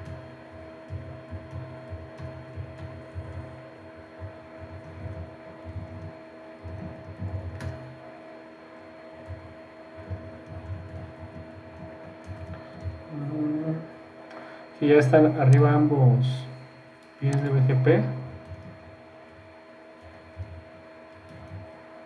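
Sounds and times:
electrical hum with tones: 0.0s - 22.0s
typing on computer keyboard: 10.1s - 13.0s.

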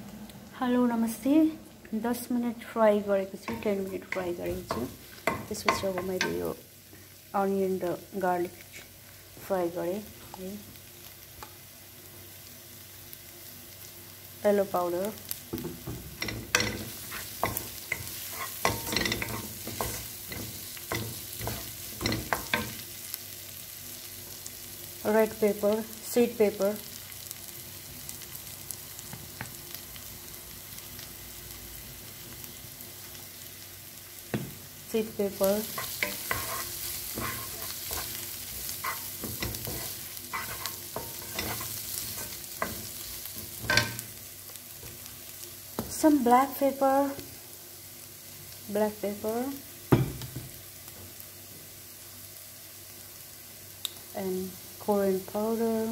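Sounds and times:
onions sizzling in oil: 0.4s - 55.9s
spatula scraping a wok: 16.1s - 22.8s, 35.6s - 44.2s.

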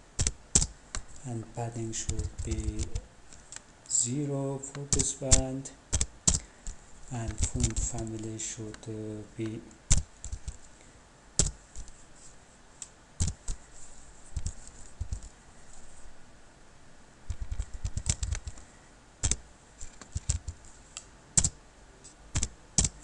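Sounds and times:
computer keyboard typing: 0.2s - 1.2s, 1.8s - 3.6s, 4.8s - 8.3s, 9.4s - 10.6s, 11.4s - 11.9s, 17.3s - 18.6s, 19.2s - 20.6s, 21.4s - 21.6s, 22.4s - 23.0s.

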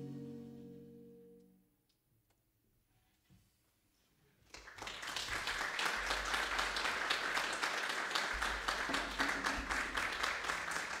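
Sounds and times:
audience clapping: 4.4s - 11.0s.

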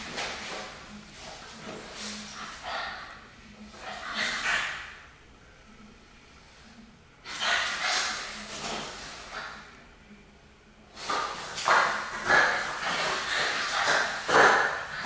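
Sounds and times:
puppies snorting and huffing: 11.1s - 15.0s.

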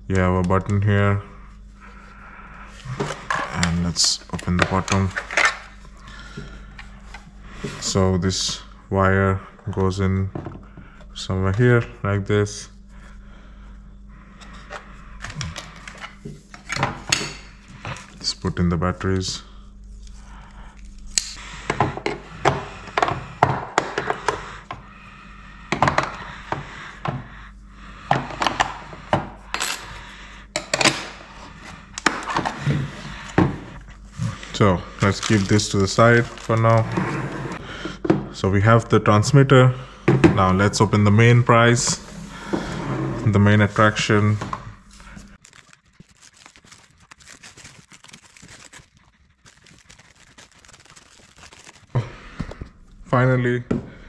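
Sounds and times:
plastic wrapping crinkling: 34.3s - 36.8s, 44.8s - 52.5s.

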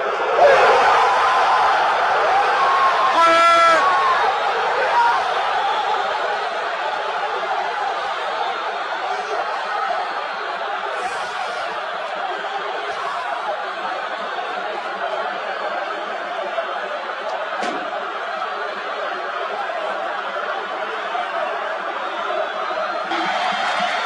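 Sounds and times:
stadium crowd cheering: 0.0s - 24.0s.

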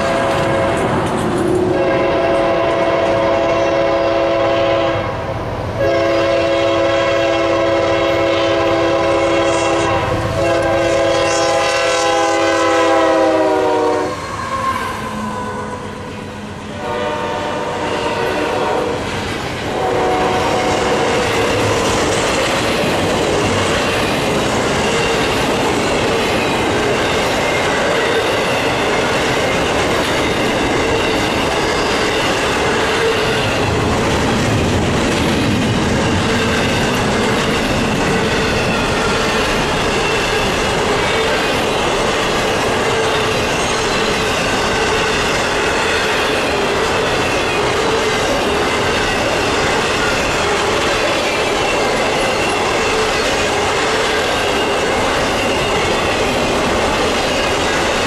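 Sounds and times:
locomotive air horn: 0.0s - 0.8s, 1.7s - 5.2s, 5.8s - 19.0s, 19.7s - 21.1s
freight cars rumbling on rails: 0.0s - 58.0s.

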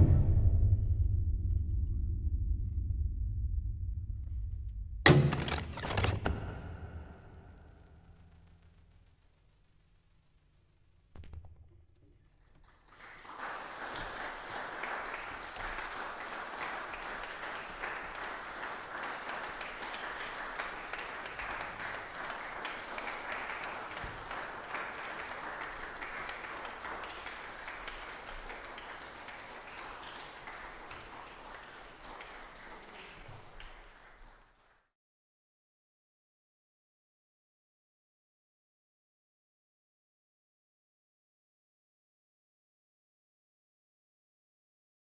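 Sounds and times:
brief low sound: 0.0s - 5.6s
audience applauding: 12.5s - 34.8s.

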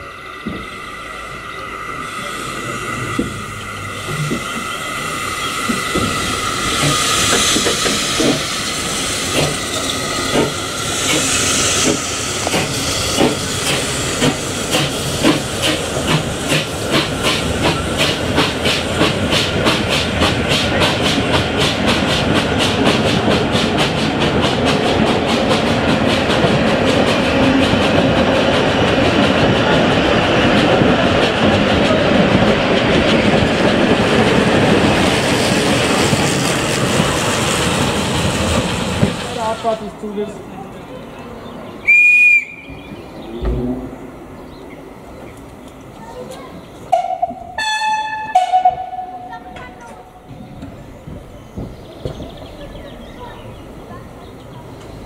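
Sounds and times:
steam hissing: 0.0s - 27.7s, 32.7s - 40.3s
steam locomotive chuffing: 0.0s - 40.5s
coaches clickety-clack: 49.6s - 52.8s.

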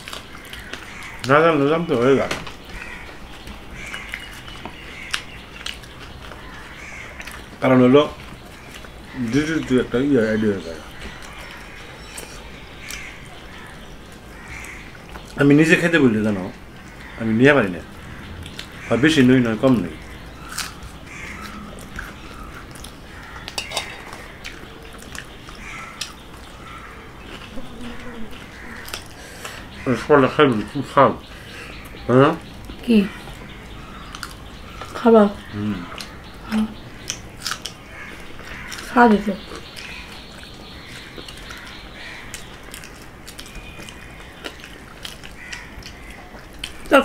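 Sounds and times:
person chewing: 0.0s - 1.3s, 2.5s - 7.6s, 8.2s - 9.2s, 17.8s - 18.8s, 20.0s - 29.8s, 33.3s - 35.0s, 35.6s - 38.9s, 39.5s - 46.9s
food worked on steel plates: 20.5s - 31.1s.

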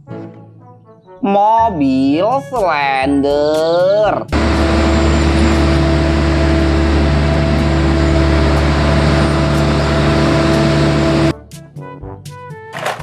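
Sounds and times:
vehicle engine running: 4.3s - 11.3s.

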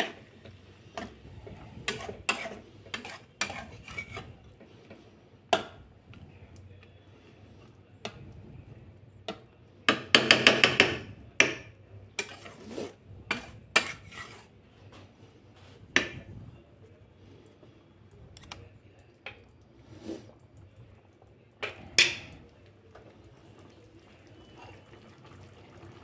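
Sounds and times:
metal spatula knocking a pan: 9.9s - 11.7s.

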